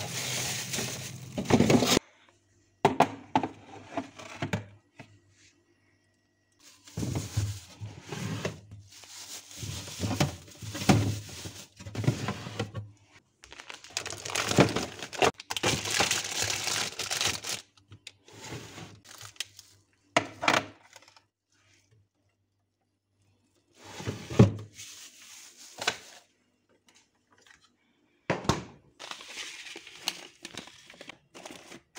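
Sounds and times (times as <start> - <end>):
plastic bags rustling: 0.0 - 2.0, 6.6 - 12.7, 13.4 - 17.7, 18.9 - 19.8.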